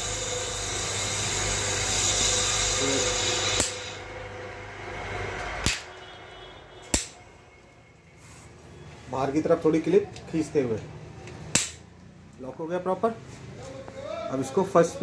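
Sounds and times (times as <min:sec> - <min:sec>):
electric machine hum: 0:00.0 - 0:07.2.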